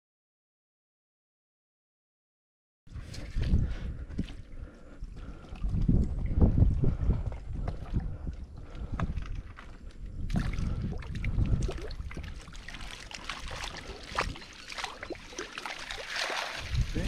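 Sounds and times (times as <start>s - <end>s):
net splashing and sloshing water: 10.3s - 17.0s
water streaming off mesh: 12.5s - 17.0s.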